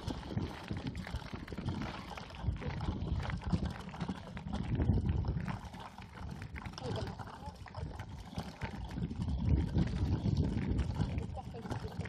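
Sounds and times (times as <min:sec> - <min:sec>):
bike rolling on unpaved path: 0:00.0 - 0:12.0
wind buffeting microphone: 0:00.0 - 0:12.0.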